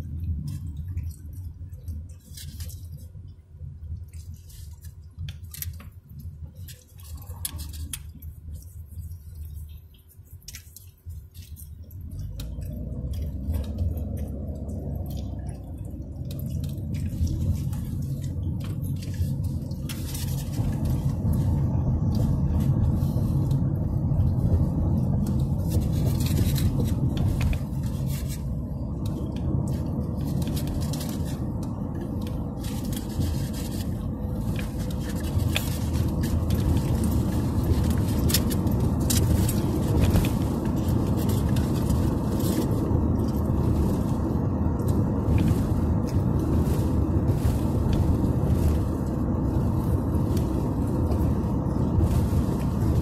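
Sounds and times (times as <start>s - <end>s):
car cabin road rumble: 0.0s - 53.0s
small clicks and crackles: 0.0s - 53.0s.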